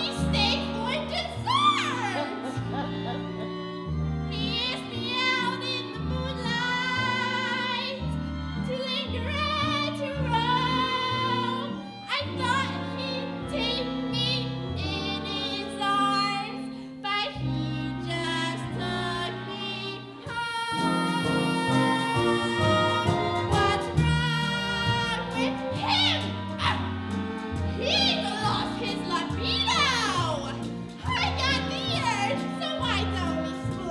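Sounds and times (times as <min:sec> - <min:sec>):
double bass walking: 0:00.0 - 0:16.5, 0:17.5 - 0:33.9
small live band: 0:20.5 - 0:33.9
woman singing show tune: 0:27.8 - 0:33.9.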